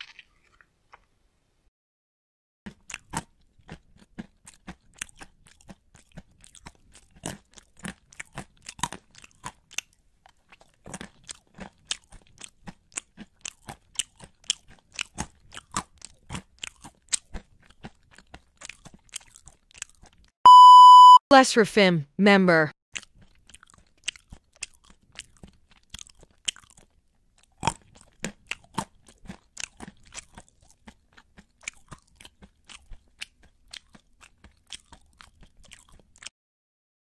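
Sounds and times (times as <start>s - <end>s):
crunchy chewing: 0.0s - 1.1s, 2.7s - 20.3s, 22.9s - 36.3s
loud beep tone: 20.5s - 21.3s.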